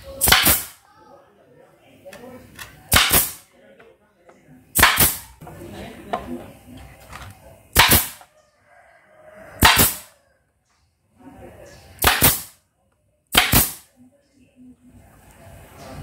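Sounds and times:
pneumatic nailer firing into wood: 0.2s - 0.8s, 2.9s - 3.4s, 4.8s - 5.3s, 7.7s - 8.2s, 9.6s - 10.1s, 12.0s - 12.6s, 13.3s - 13.9s.

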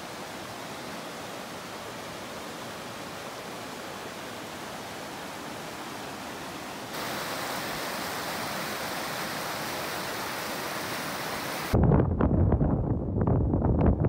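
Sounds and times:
stream rushing over rocks: 0.0s - 11.8s
low rumble with crackles: 11.8s - 14.0s.

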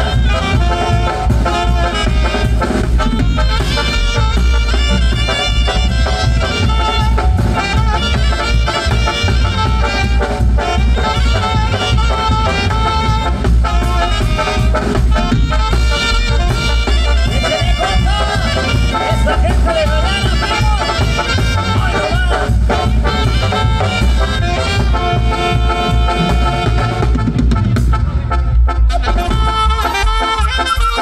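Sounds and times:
booming bass drum: 0.0s - 30.2s
brass band playing: 0.0s - 31.0s.

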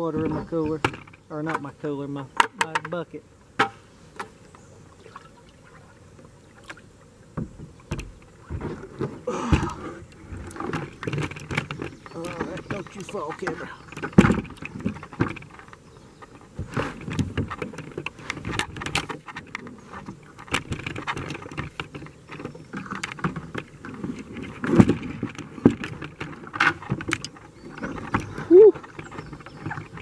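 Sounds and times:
knocks and clunks in plastic kayak: 0.0s - 1.8s, 2.4s - 5.3s, 6.2s - 30.0s.

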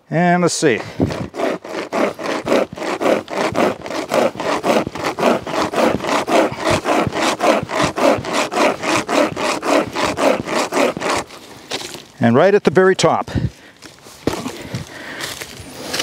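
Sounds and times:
chain saw rasping through log: 0.6s - 12.1s.

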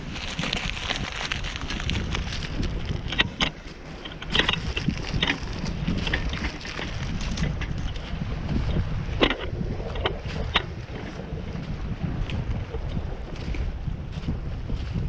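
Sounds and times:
crinkling rustles: 0.0s - 8.2s
wind buffeting the microphone: 0.0s - 15.0s.

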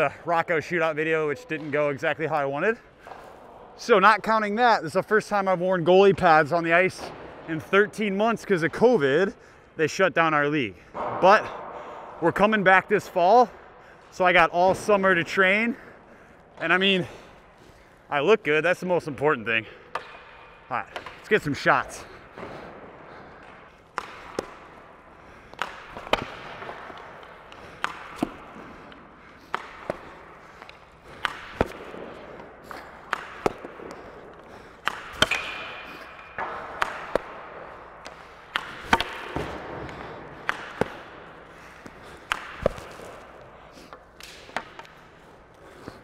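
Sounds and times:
hockey stick cracking against puck: 19.9s - 21.4s, 23.3s - 46.0s
puck smacking into boards: 23.4s - 24.8s, 25.5s - 46.0s.

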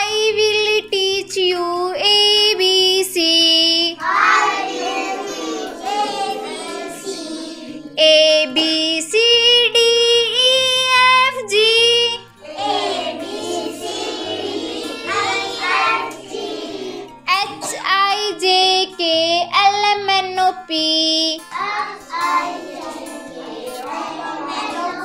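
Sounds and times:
woman singing: 0.0s - 4.0s, 5.9s - 12.9s, 17.3s - 21.6s
children singing together: 0.0s - 20.6s, 21.2s - 25.0s
backing music: 0.0s - 25.0s.

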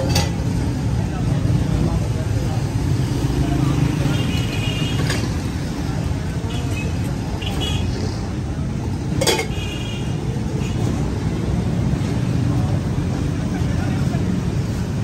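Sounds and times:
low rumble of busy street: 0.0s - 15.0s
crockery clink: 9.2s - 9.5s.

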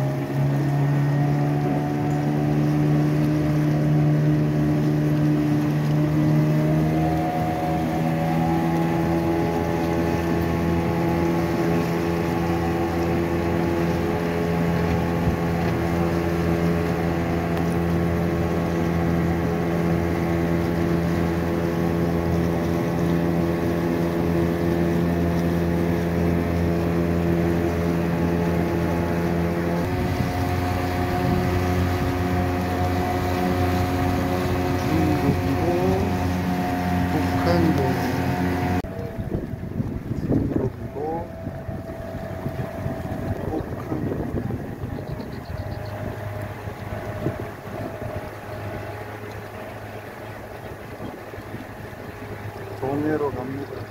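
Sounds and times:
boat motor running: 0.0s - 53.9s
rush of boat wake: 0.0s - 53.9s.

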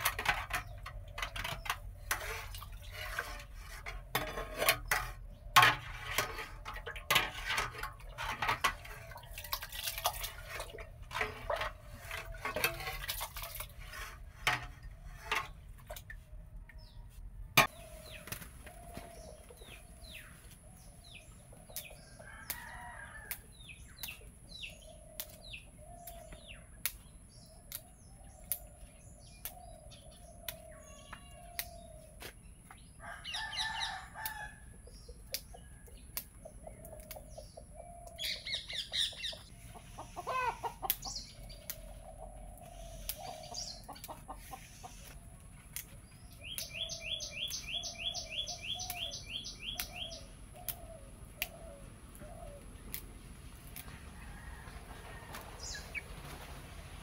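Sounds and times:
birds and chickens chirping: 0.0s - 57.0s
rapid ticking bird calls: 46.3s - 53.0s.

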